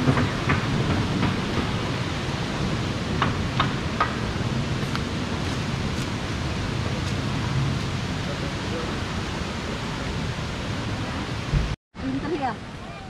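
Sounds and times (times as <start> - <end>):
river rushing over rocks: 0.0 - 11.7
footsteps on dry leaves: 4.8 - 6.3.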